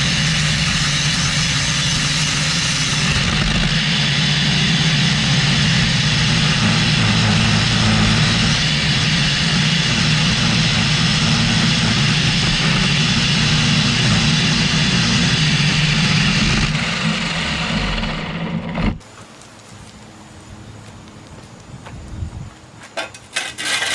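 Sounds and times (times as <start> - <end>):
power lawn edger drone: 0.0 - 19.0.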